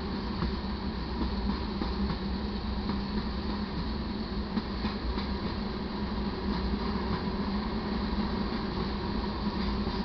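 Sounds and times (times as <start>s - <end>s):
freight train wheels rolling: 0.0s - 10.0s.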